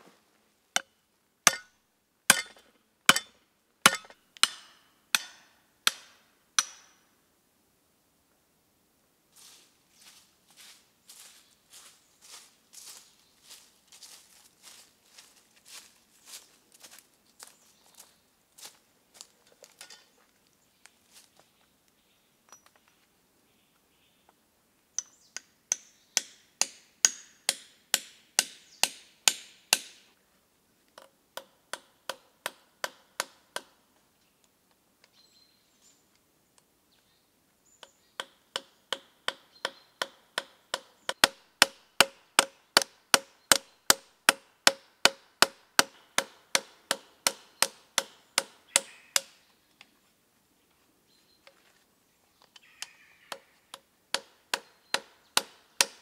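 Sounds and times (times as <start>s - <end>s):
hand tool striking metal: 1.5s - 7.0s, 25.0s - 30.0s.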